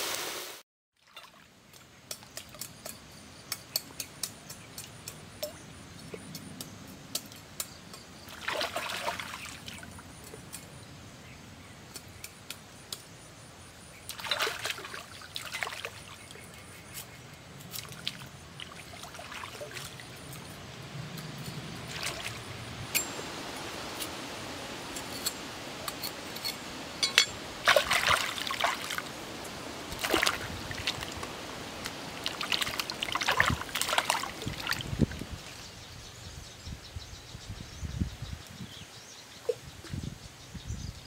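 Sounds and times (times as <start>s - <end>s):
water splashing and sloshing: 1.0s - 2.7s, 8.2s - 10.6s, 14.1s - 35.6s.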